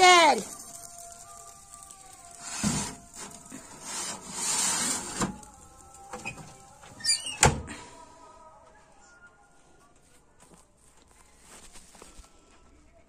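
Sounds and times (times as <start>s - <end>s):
metal clatter and scraping: 2.3s - 5.5s.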